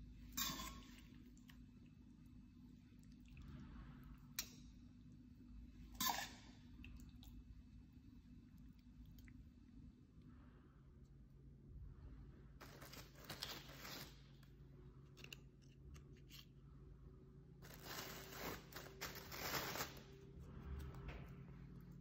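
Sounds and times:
tortilla chips crackling: 12.6s - 14.5s, 17.6s - 20.2s.

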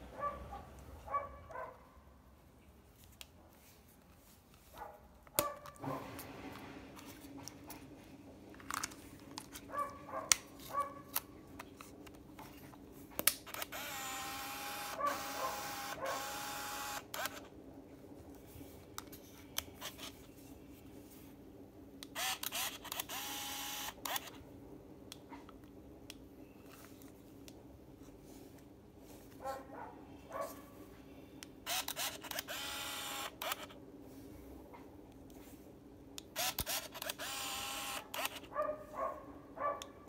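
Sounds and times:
camera motor whirring: 13.4s - 17.5s, 19.8s - 20.2s, 22.0s - 24.4s, 31.6s - 33.8s, 36.3s - 38.5s
camera body clicks: 36.4s - 38.4s.

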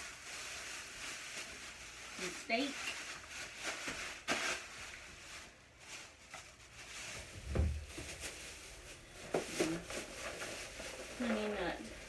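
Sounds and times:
groceries being handled: 0.0s - 12.0s
dull thump: 7.4s - 8.1s.

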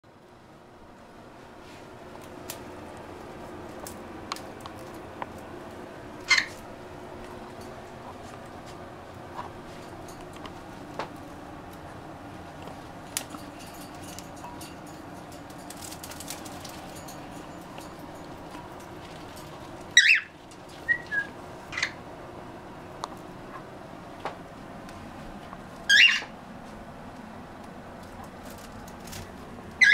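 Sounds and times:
room hum: 0.0s - 29.9s
birds chirping and squawking: 6.2s - 6.6s, 19.9s - 22.0s, 25.9s - 26.3s.

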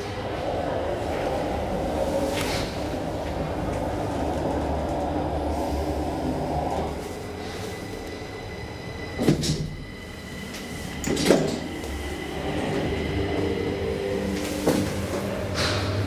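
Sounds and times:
elevator drive humming: 0.0s - 16.0s
elevator clunks: 10.9s - 16.0s.

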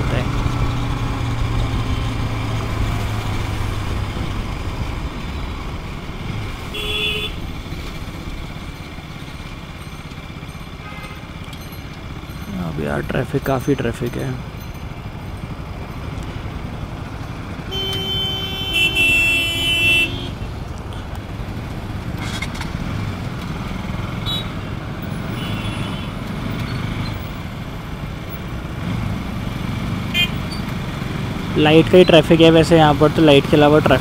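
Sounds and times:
motorcycle and car engines: 0.0s - 34.0s
vehicle horn honking: 6.6s - 7.6s, 10.8s - 11.3s, 17.6s - 20.4s, 24.2s - 24.7s, 25.3s - 26.2s, 30.1s - 30.6s.

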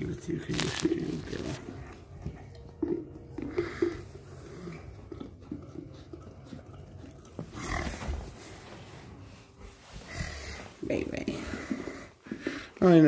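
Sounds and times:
dog licking plastic jar: 0.6s - 7.6s.

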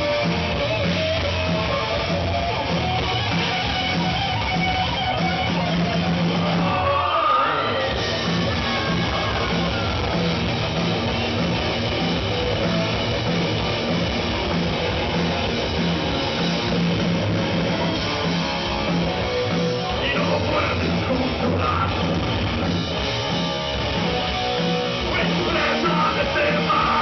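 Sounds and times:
live rock band playing: 0.0s - 27.0s.

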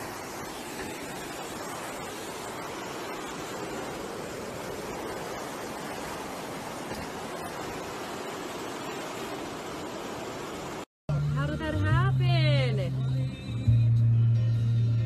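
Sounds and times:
ocean waves breaking: 0.0s - 10.9s.

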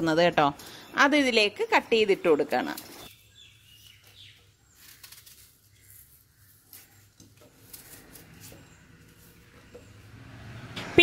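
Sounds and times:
birds chirping: 0.3s - 10.8s
knife cutting apple: 4.8s - 10.0s.

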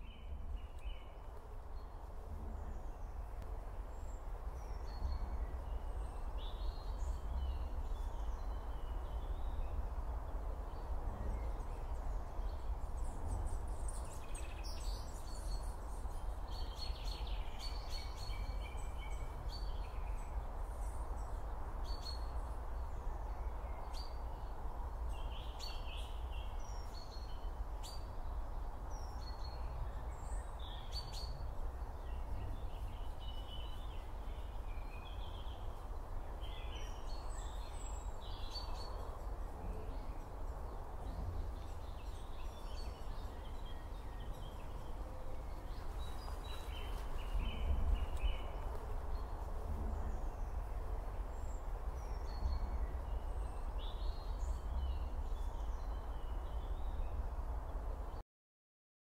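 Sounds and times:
birds chirping: 28.9s - 56.9s.

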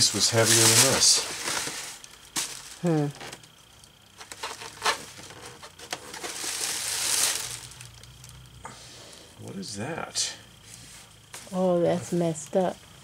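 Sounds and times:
plastic wrapping crinkling: 0.0s - 8.6s.

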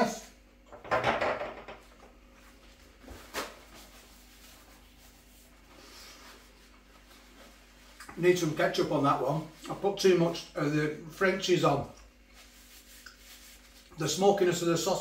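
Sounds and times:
kitchen paper tearing: 12.4s - 14.0s.

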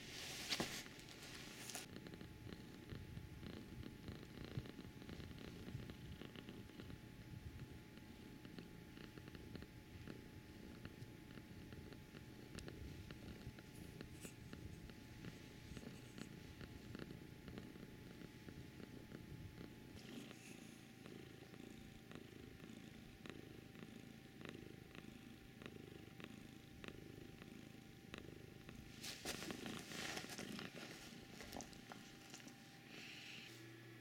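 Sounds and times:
scratchy rustle: 0.0s - 1.9s, 28.9s - 32.6s
kitten purring: 0.9s - 33.5s.

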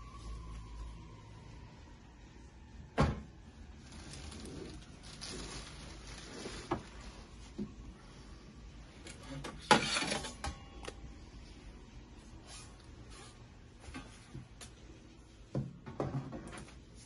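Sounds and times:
metal scrape: 9.1s - 10.4s.

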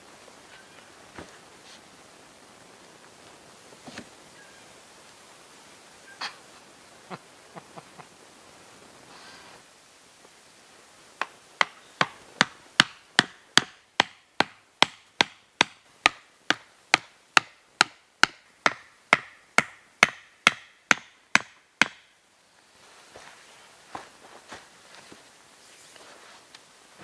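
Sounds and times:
hatchet pounding wooden stakes: 11.2s - 22.1s.

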